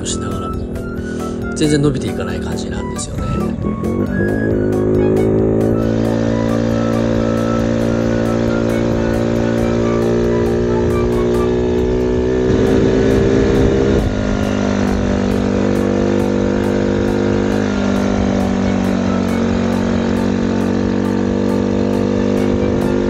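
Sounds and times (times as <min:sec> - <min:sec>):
background music: 0:00.0 - 0:23.0
moped engine labouring: 0:00.0 - 0:23.0.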